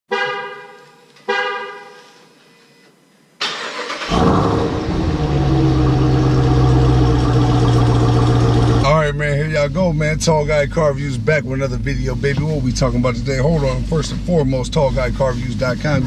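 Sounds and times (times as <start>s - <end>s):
car engine starting and idling: 3.4s - 16.0s.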